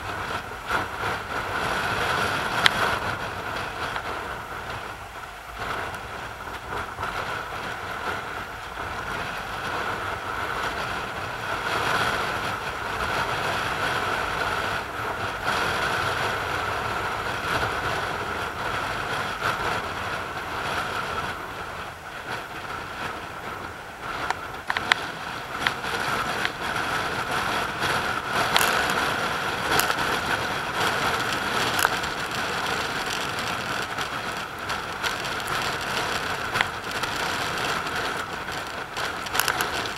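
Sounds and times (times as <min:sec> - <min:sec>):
surf breaking on rocks: 0:24.3 - 0:39.9.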